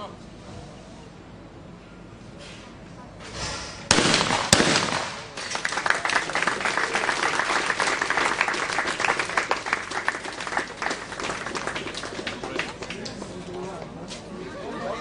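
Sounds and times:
shotgun shot: 0:03.4 - 0:05.4
audience applauding: 0:05.4 - 0:13.5.

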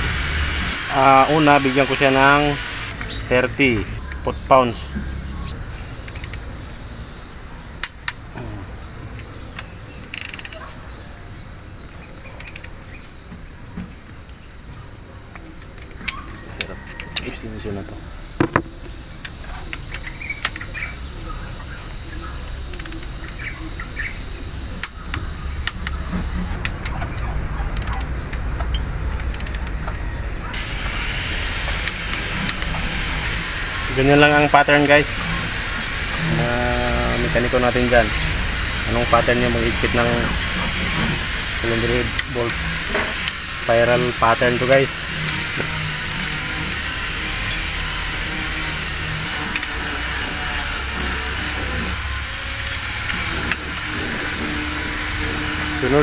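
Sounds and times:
hiss: 0:00.0 - 0:04.2, 0:05.6 - 0:08.7, 0:30.5 - 0:56.0
torque wrench ratcheting clicks: 0:00.1 - 0:04.3, 0:05.8 - 0:07.2, 0:07.8 - 0:08.2, 0:09.2 - 0:10.6, 0:12.4 - 0:13.2, 0:18.3 - 0:21.0, 0:21.9 - 0:56.0.

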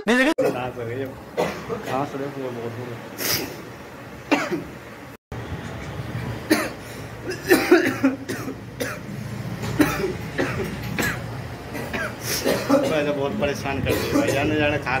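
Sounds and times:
man coughing: 0:00.0 - 0:00.7, 0:01.4 - 0:02.1, 0:04.3 - 0:04.7, 0:06.5 - 0:09.1, 0:09.7 - 0:13.2, 0:13.8 - 0:14.5.

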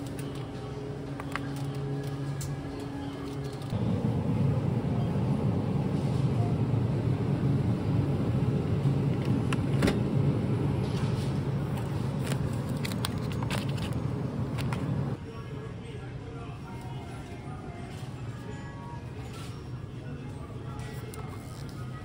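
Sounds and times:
vehicle rumble: 0:03.4 - 0:15.2.

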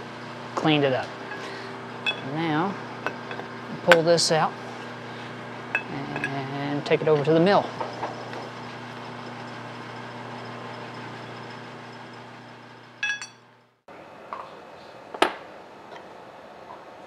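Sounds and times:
steady low hum: 0:00.0 - 0:15.8
metallic clink: 0:01.3 - 0:02.3, 0:13.0 - 0:13.4.

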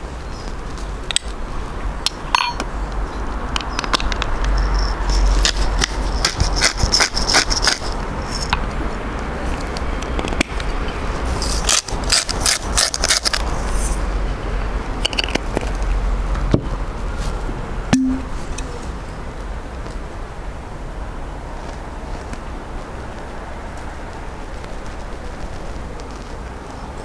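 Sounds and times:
teaspoon clinking glass bowl: 0:02.4 - 0:02.6
grinders cracking seasoning: 0:04.6 - 0:08.5, 0:11.4 - 0:13.5.

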